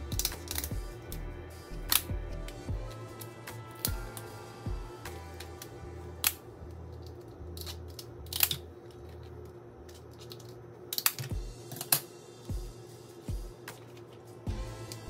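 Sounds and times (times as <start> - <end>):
shears snipping through shell: 0.0 - 1.2.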